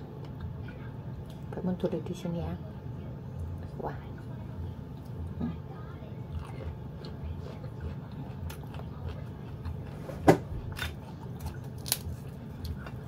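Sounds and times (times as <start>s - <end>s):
steady low hum: 0.0s - 13.0s
person chewing: 6.2s - 13.0s.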